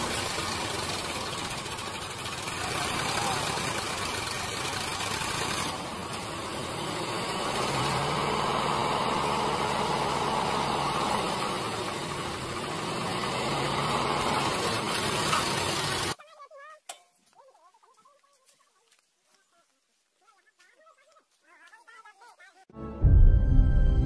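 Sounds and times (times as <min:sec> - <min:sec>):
tractor diesel engines straining: 0:00.0 - 0:16.2.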